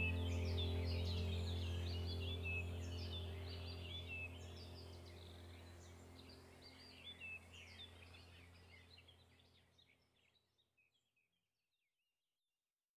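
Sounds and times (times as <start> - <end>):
steady low hum: 0.0 - 9.6
small birds chirping: 0.0 - 11.4.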